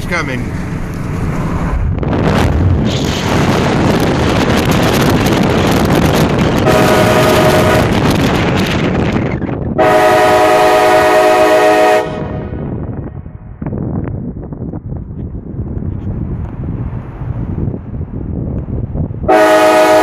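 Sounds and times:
wind and road noise: 0.0s - 20.0s
train horn chord blasts: 6.6s - 7.9s, 9.8s - 12.6s, 19.3s - 20.0s.

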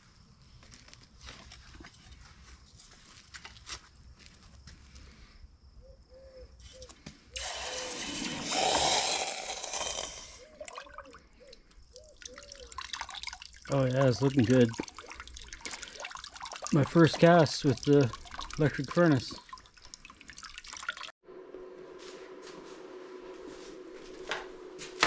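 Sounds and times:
hot metal hissing in water: 7.4s - 10.5s
gurgling bubbles: 7.4s - 21.1s.

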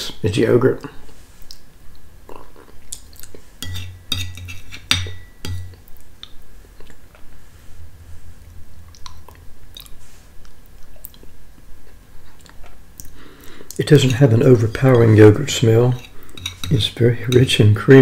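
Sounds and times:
mouth sounds of eating: 0.8s - 3.5s, 8.8s - 11.4s
spoon scraping ceramic plate: 3.6s - 5.8s, 13.9s - 17.6s.

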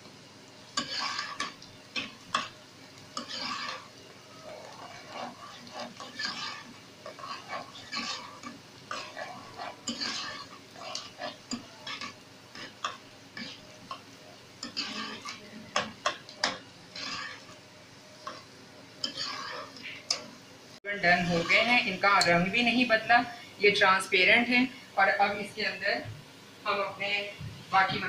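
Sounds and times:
onions sizzling: 0.0s - 28.0s
metal spoon scraping a pot: 0.8s - 14.0s, 14.6s - 17.6s, 18.2s - 20.3s.

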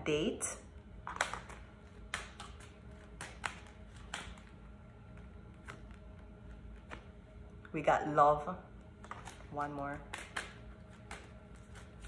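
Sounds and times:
cards being shuffled: 1.0s - 7.2s, 9.0s - 12.0s.

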